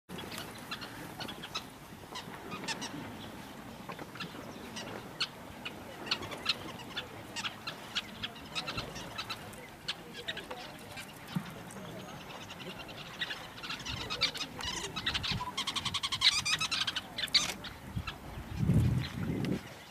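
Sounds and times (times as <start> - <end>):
birds chirping: 0.1 - 19.9.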